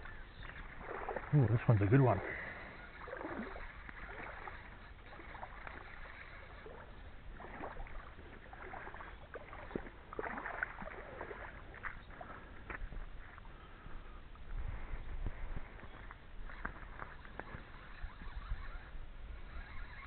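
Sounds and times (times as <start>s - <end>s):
lake water sloshing and splashing: 0.0s - 20.0s.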